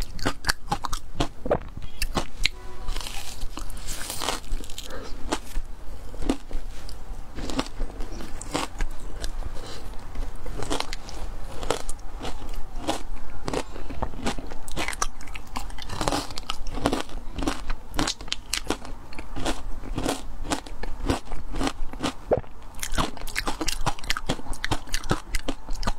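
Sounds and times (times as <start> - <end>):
frozen ice crunched in mouth: 3.0 - 22.2.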